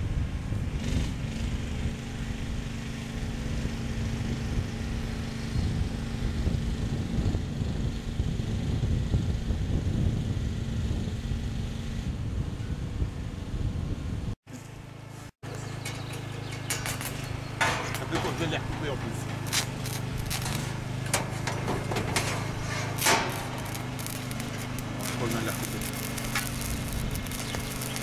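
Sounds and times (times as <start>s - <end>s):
engine idling: 14.6s - 28.0s.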